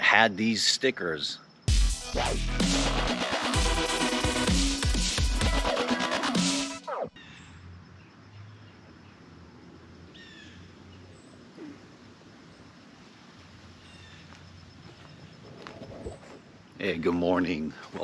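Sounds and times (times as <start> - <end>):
bird chirping: 6.9 - 12.8.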